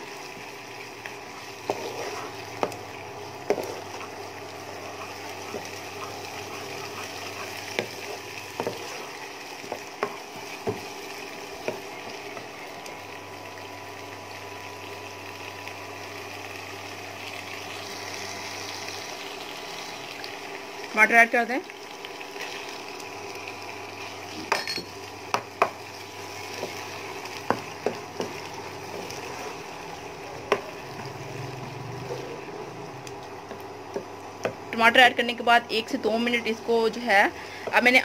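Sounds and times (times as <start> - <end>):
onions sizzling in oil: 0.0 - 38.0
wooden spatula stirring: 0.2 - 12.5, 25.3 - 31.2
spatula tapping pan: 24.5 - 25.8, 26.5 - 29.2, 30.5 - 30.7.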